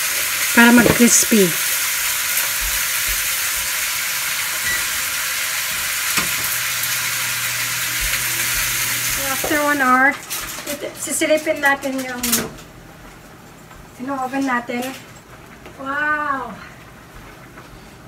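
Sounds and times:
hot fat sizzling: 0:00.0 - 0:11.2.

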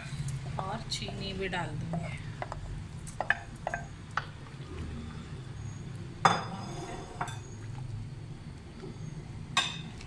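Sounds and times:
spoon stirring in metal pot: 0:00.9 - 0:04.3.

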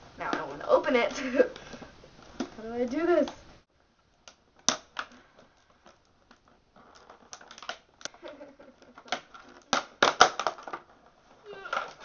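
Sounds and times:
packaging crinkling and crackling: 0:04.2 - 0:12.0.

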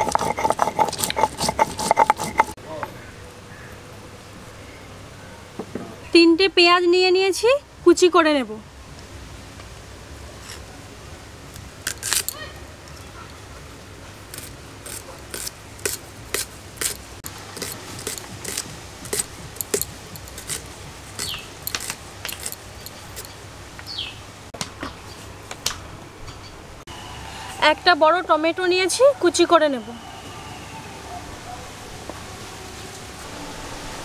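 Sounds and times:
knife chopping onions: 0:17.6 - 0:23.3.

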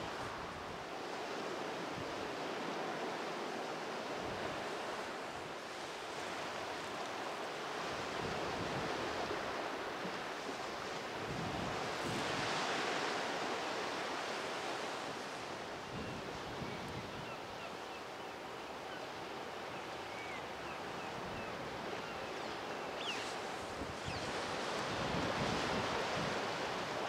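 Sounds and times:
sea surf washing: 0:00.0 - 0:17.1, 0:22.8 - 0:27.0.

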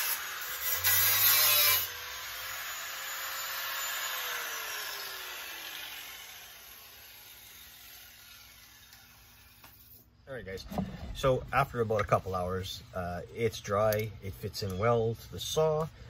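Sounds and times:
angle grinder cutting steel: 0:00.0 - 0:09.9
grinder whine winding down: 0:01.9 - 0:09.2.

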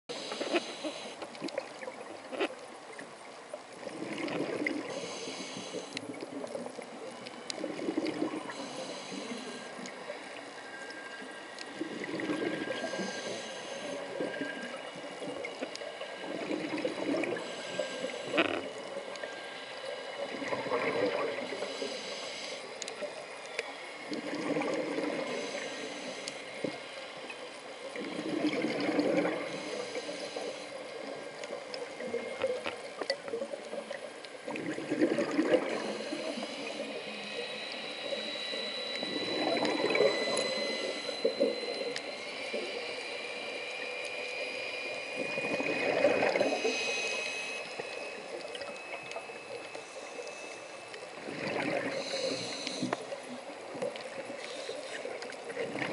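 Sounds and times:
exhaled bubbles underwater: 0:03.0 - 0:10.3, 0:11.7 - 0:19.3, 0:20.2 - 0:21.9, 0:24.1 - 0:25.6, 0:27.9 - 0:54.4, 0:55.0 - 0:55.9
regulator hissing: 0:35.6 - 0:51.2.

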